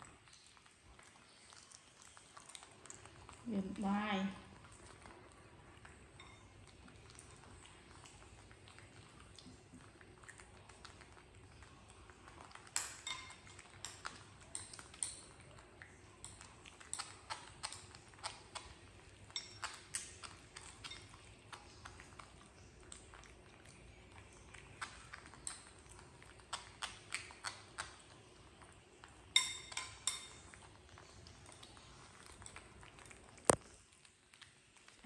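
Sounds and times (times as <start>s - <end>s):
faint background hum: 0.0s - 35.0s
light clicks and clinks: 12.7s - 15.3s, 29.4s - 30.5s.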